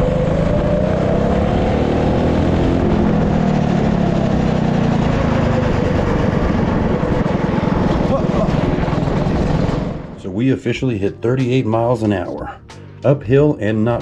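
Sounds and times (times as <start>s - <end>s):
go-kart engine at high revs: 0.0s - 10.2s.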